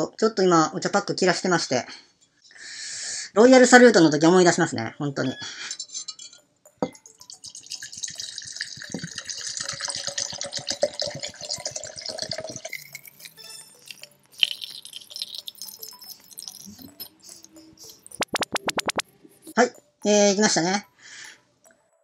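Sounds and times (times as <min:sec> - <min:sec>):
liquid trickling and dripping: 0:06.3 - 0:20.1
liquid glugging from bottle: 0:06.8 - 0:19.5.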